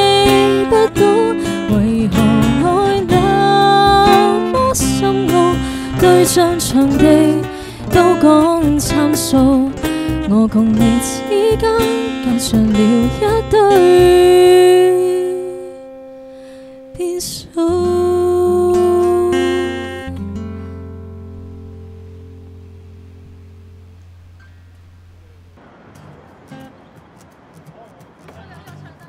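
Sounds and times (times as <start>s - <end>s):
woman singing into microphone: 0.0s - 15.9s, 16.9s - 20.4s
acoustic guitar: 0.0s - 29.0s.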